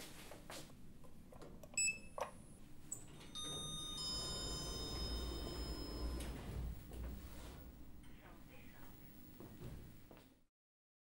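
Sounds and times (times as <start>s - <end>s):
elevator call button click: 1.7s - 7.1s
held chord of high chimes: 3.3s - 6.5s.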